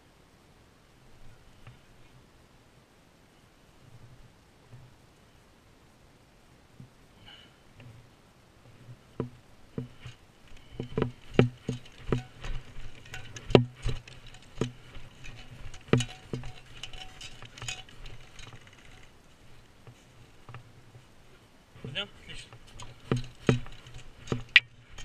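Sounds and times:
footsteps on snow: 8.6 - 25.0.

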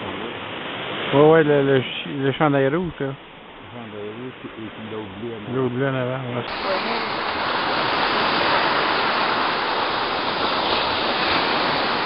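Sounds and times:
small waves breaking on rocks: 6.5 - 12.0.

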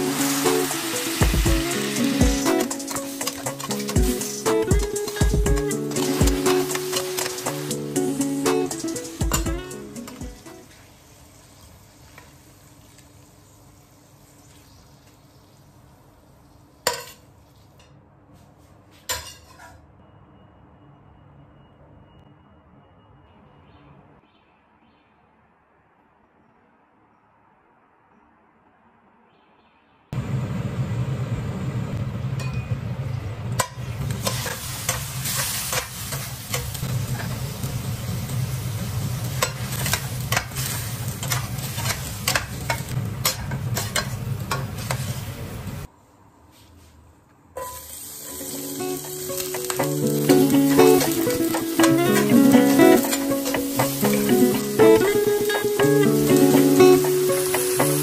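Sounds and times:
meat sizzling in a frying pan: 0.0 - 15.6, 34.2 - 43.0, 47.7 - 58.0
metal spatula scraping frying pan: 1.7 - 7.8, 34.2 - 36.8, 39.4 - 45.0.

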